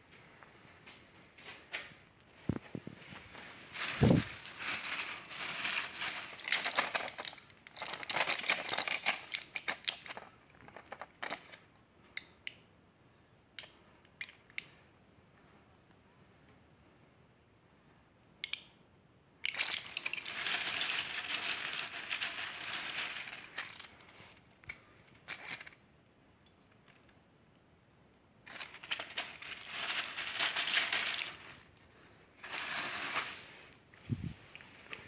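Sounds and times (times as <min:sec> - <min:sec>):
blister packs crinkling: 0:02.5 - 0:11.6, 0:19.5 - 0:25.8, 0:28.5 - 0:33.5.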